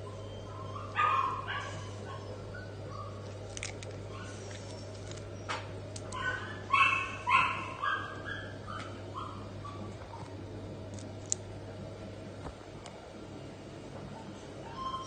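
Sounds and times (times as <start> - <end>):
puppy yipping: 0.0 - 3.3, 4.1 - 10.2, 14.2 - 15.0.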